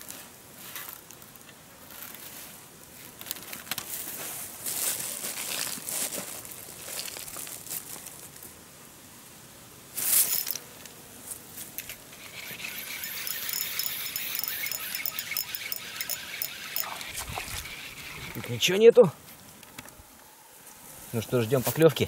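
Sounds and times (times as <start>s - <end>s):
rustling and crinkling: 0.0s - 8.6s.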